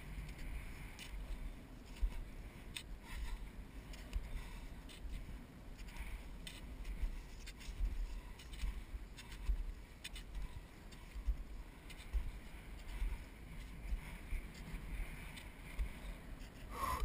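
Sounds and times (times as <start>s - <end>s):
skis scraping over snow: 0.0s - 16.9s.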